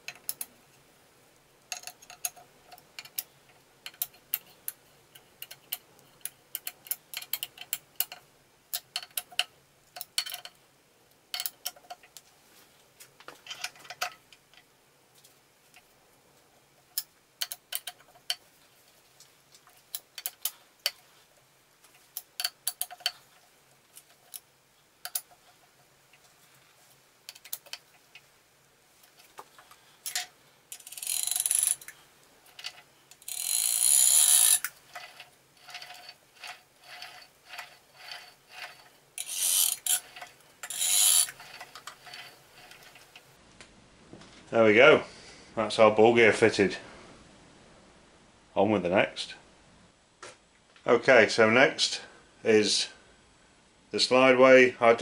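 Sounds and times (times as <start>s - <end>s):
metal scraping on metal: 30.0s - 31.9s, 32.5s - 43.3s.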